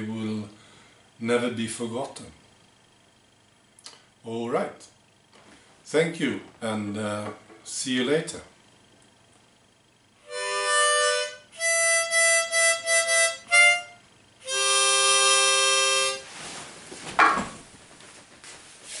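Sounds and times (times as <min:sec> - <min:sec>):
harmonica chords: 0:10.2 - 0:16.3.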